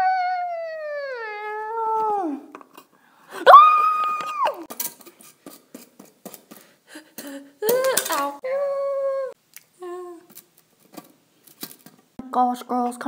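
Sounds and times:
girl making wordless vocal sounds: 0.0s - 2.5s, 7.2s - 10.3s.

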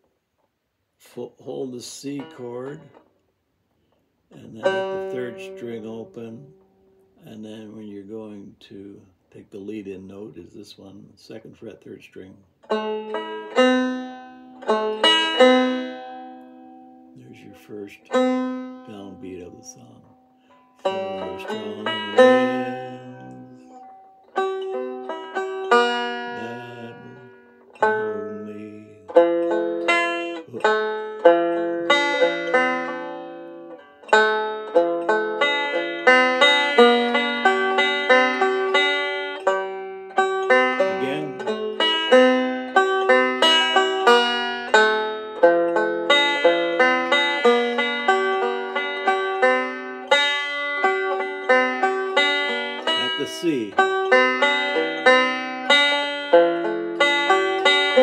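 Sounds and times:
banjo fingerpicking: 1.0s - 58.0s.

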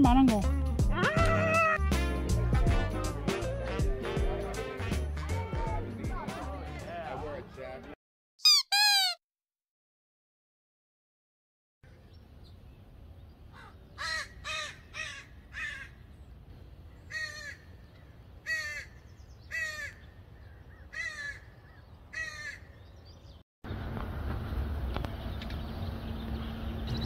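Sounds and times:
crow cawing: 13.5s - 16.0s, 17.1s - 17.7s, 18.4s - 22.8s.

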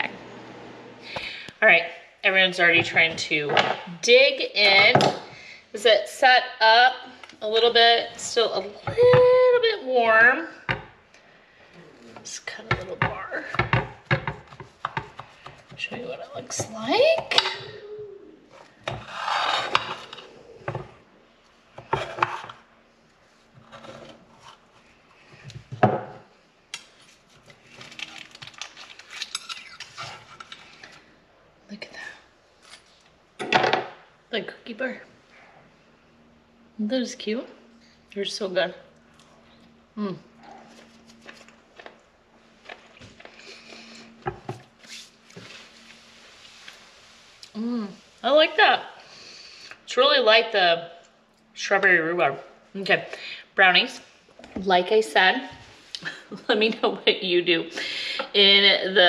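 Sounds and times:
spatula scraping glass dish: 19.0s - 20.2s.

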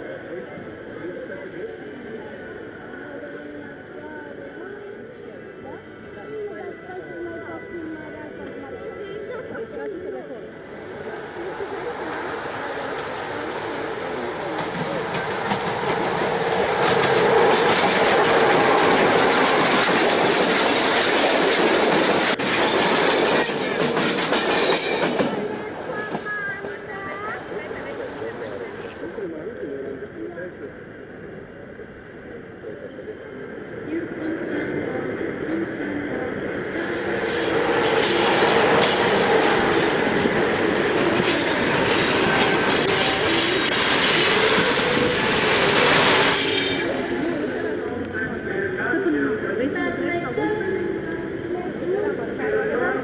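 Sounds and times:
model train wheels clattering: 10.8s - 29.0s.

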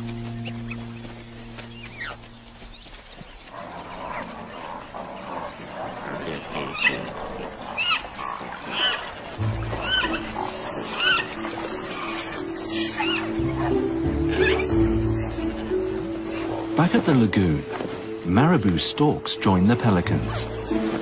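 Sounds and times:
pelicans and storks calling: 0.0s - 21.0s
musical drone: 9.4s - 21.0s.

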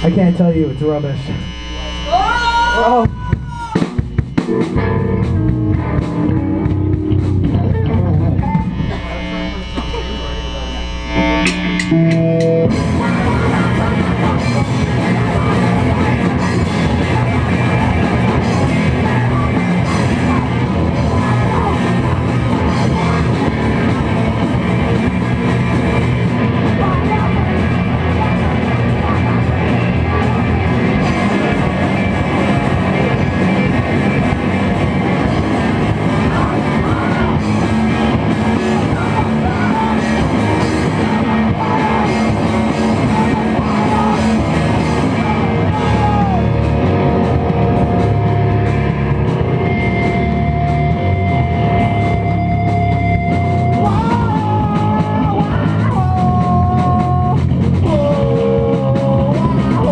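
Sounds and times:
singer yelling into microphone: 0.0s - 4.0s, 36.0s - 48.6s, 53.7s - 59.9s
rock band playing: 0.0s - 59.9s.

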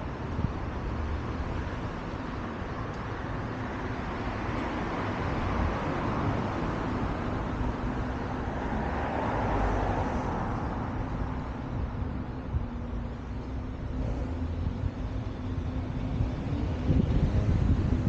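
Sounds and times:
road traffic hiss and rumble: 0.0s - 18.0s.

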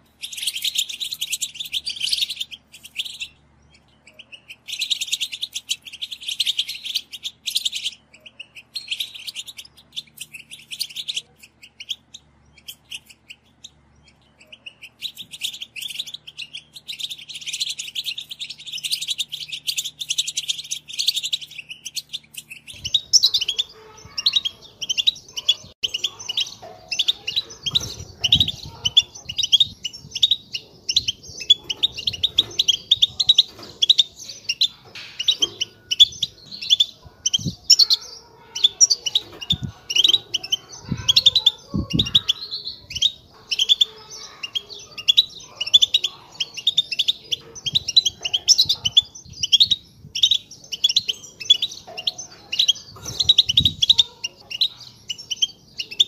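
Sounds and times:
goldfinches twittering: 0.0s - 56.0s.

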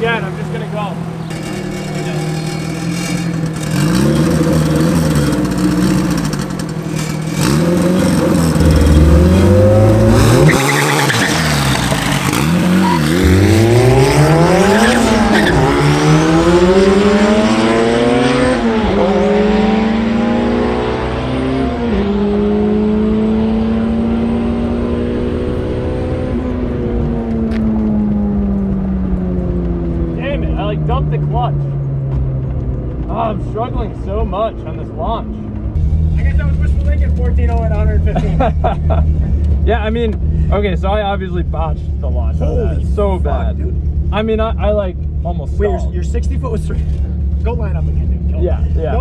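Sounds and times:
car engine revving: 0.0s - 49.0s
gear upshifts: 0.2s - 20.2s
engine pulling through gears: 0.4s - 49.0s.

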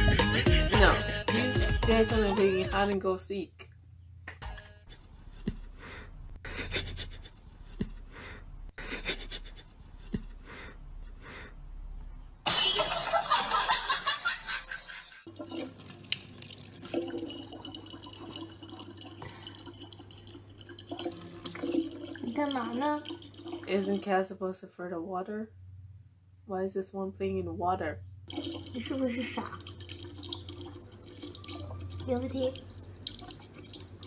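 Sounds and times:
kitchen tap running: 15.3s - 24.1s, 28.3s - 34.0s.

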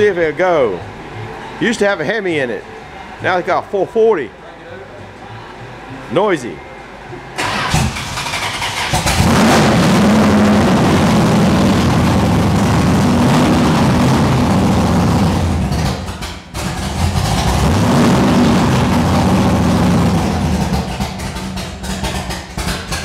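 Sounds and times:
engine revving: 7.4s - 23.0s.

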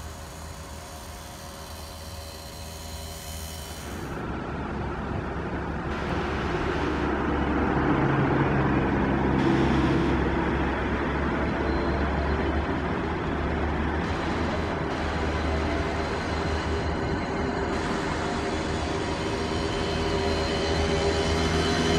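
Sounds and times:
engine and traffic noise: 0.0s - 21.9s.

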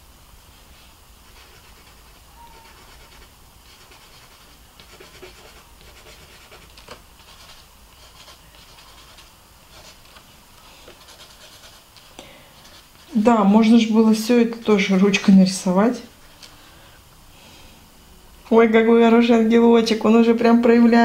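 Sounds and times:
pen scratching on paper: 1.3s - 10.2s, 10.8s - 13.2s.

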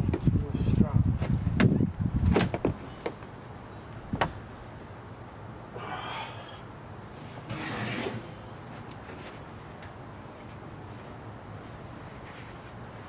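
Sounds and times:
short scrape: 7.4s - 8.4s.

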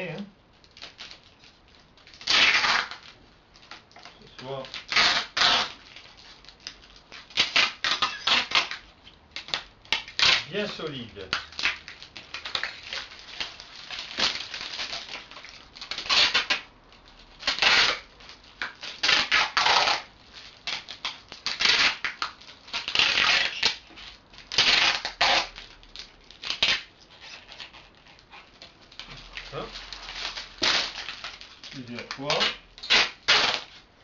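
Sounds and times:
adhesive tape ripping off roll: 0.1s - 33.9s.

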